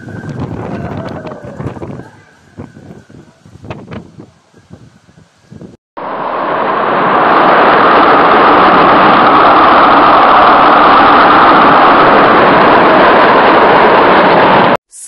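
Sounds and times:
storm wind: 0:00.0 - 0:14.8
heavy rain lashing trees: 0:06.0 - 0:14.8.

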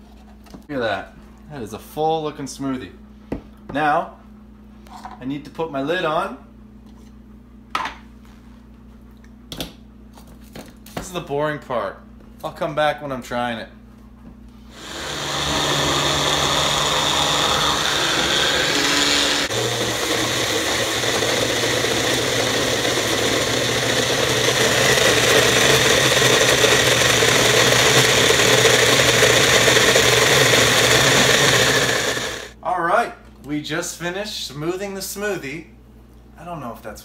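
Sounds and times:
blender motor running: 0:14.7 - 0:32.6.

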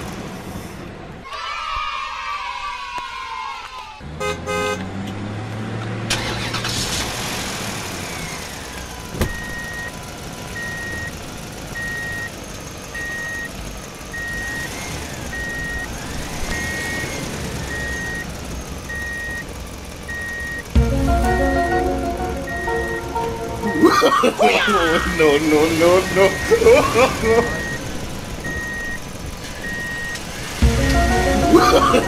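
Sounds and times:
engine rumble: 0:04.0 - 0:32.0
high electronic beep: 0:20.2 - 0:24.0, 0:24.7 - 0:27.8.

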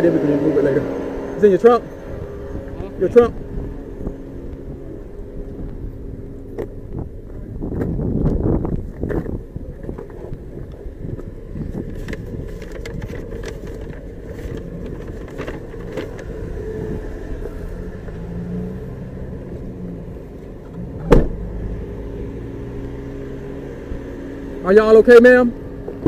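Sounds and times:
car engine running: 0:00.0 - 0:26.0
loud thump: 0:21.0 - 0:21.4.

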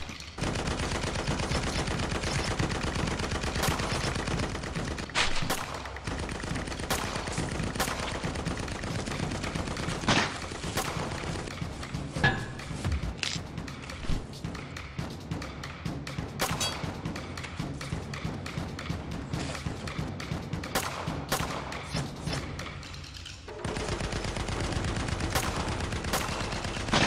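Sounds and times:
rapid automatic gunfire: 0:00.0 - 0:11.8, 0:19.9 - 0:22.4, 0:23.5 - 0:27.0.

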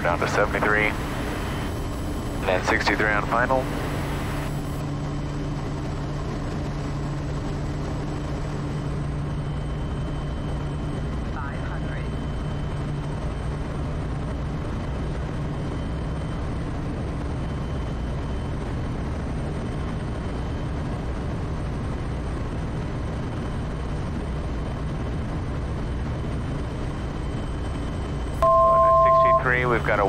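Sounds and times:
turboprop engine drone: 0:00.0 - 0:30.0
two-pitch electronic tone: 0:28.4 - 0:29.6.

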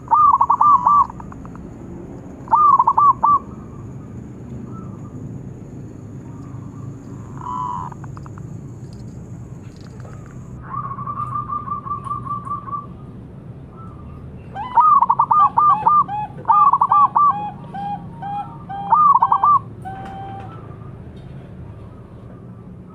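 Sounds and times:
dove cooing: 0:00.0 - 0:01.6, 0:02.5 - 0:04.0, 0:06.2 - 0:08.4, 0:14.6 - 0:20.7.

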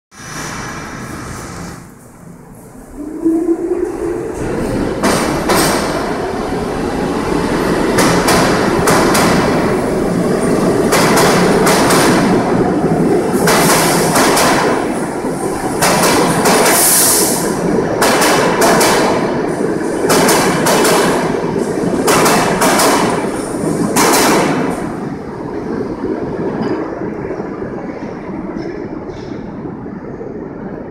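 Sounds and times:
train rumble: 0:00.1 - 0:30.9
train wheels clacking over rail joints: 0:05.0 - 0:06.0, 0:07.9 - 0:09.6, 0:10.9 - 0:12.4, 0:13.4 - 0:14.8, 0:15.8 - 0:17.1, 0:18.0 - 0:19.4, 0:20.1 - 0:21.4, 0:22.0 - 0:23.3, 0:23.9 - 0:24.7.

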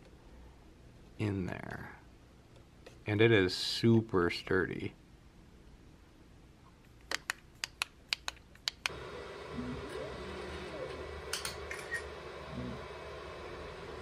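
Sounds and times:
sharp clicks: 0:07.0 - 0:09.0
stepper motors whining: 0:08.9 - 0:14.0.

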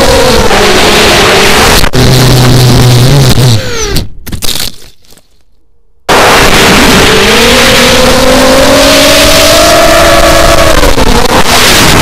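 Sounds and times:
quadcopter motors whining: 0:03.5 - 0:04.0.

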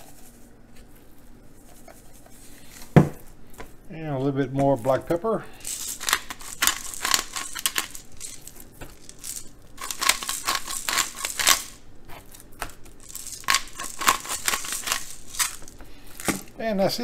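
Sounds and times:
pepper grinder crunching: 0:05.5 - 0:16.6.

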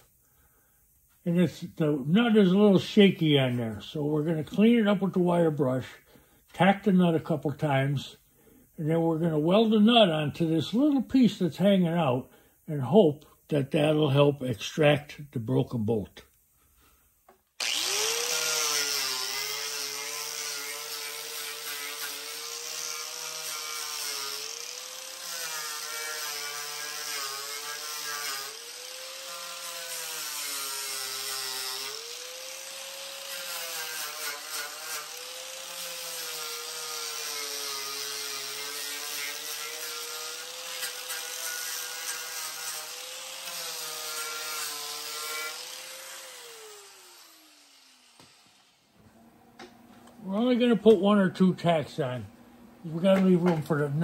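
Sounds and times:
grinder winding down whine: 0:17.6 - 0:19.7.

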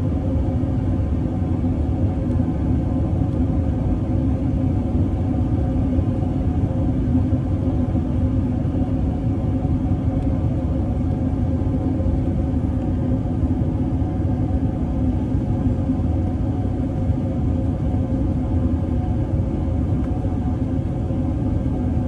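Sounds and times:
airplane cabin rumble: 0:00.0 - 0:22.0.

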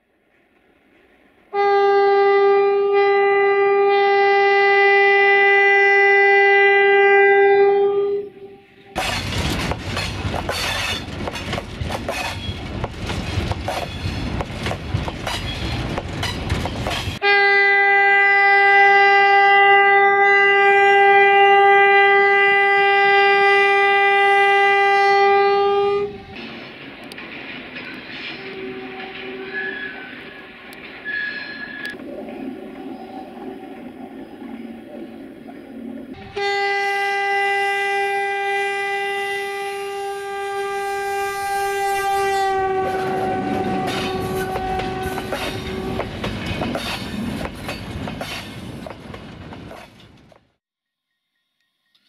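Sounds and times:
train horn blasts: 0:01.5 - 0:09.1, 0:17.2 - 0:26.4, 0:28.3 - 0:30.4, 0:36.2 - 0:46.2
train wheels clacking over rail joints: 0:09.0 - 0:17.2, 0:26.3 - 0:30.0, 0:42.9 - 0:50.5.

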